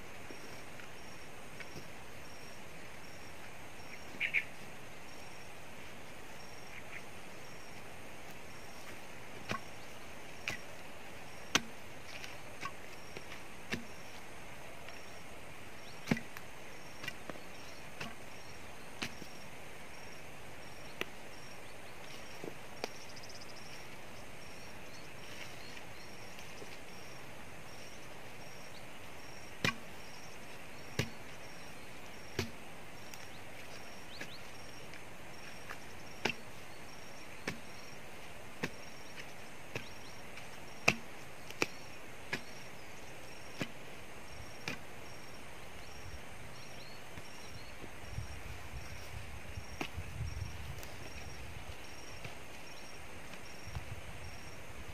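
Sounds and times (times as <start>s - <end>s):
tool chopping into tree stump: 11.4s - 11.8s, 16.0s - 16.4s, 17.9s - 18.2s, 19.0s - 19.3s, 29.6s - 29.9s, 30.9s - 31.2s, 32.3s - 32.6s, 37.4s - 37.8s, 40.8s - 42.6s.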